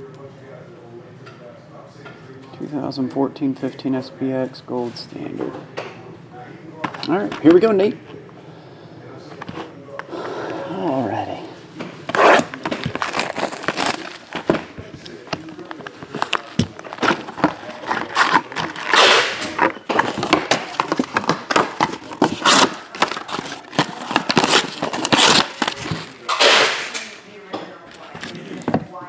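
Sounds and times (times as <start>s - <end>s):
cardboard tearing: 12.1s - 26.9s
plastic wrap crinkling: 12.1s - 27.0s.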